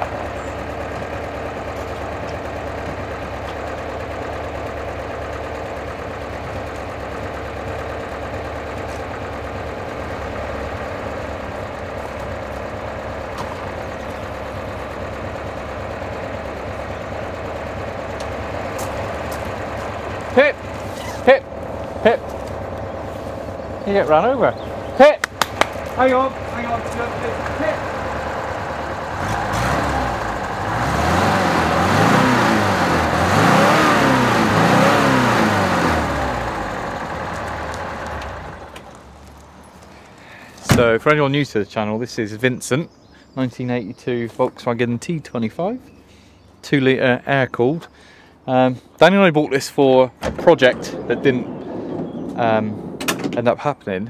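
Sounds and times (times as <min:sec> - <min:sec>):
air-cooled engine idling: 0:00.0 - 0:41.4.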